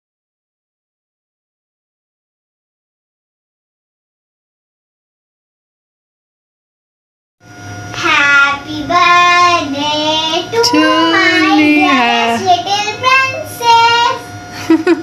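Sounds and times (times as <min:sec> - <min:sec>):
child singing: 0:08.0 - 0:14.3.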